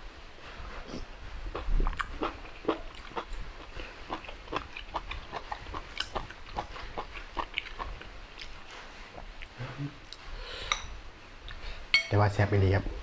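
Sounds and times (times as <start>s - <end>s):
man chewing and smacking: 0.9s - 10.2s.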